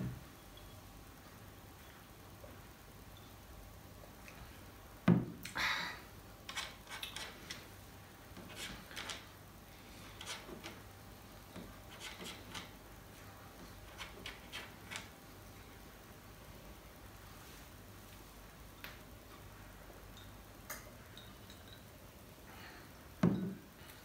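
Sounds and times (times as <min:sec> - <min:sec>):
glass mug knocking on wooden desk: 0:23.2 - 0:23.6.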